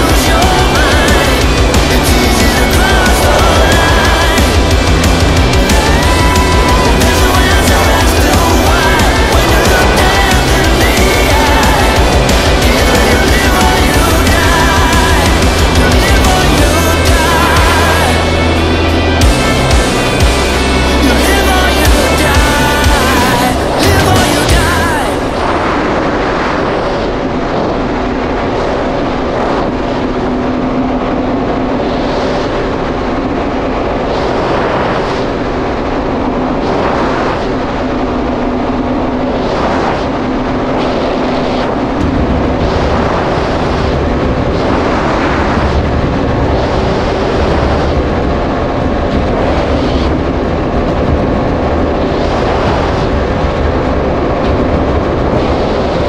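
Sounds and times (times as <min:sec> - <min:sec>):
engine whoosh: 0:00.0 - 0:56.0
watercraft engine drone: 0:00.0 - 0:56.0.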